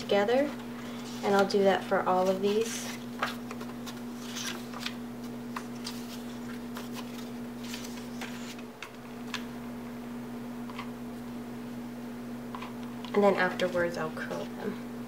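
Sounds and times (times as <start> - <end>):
steady low hum: 0.0 - 15.0
paper taps and rustles: 3.2 - 9.5.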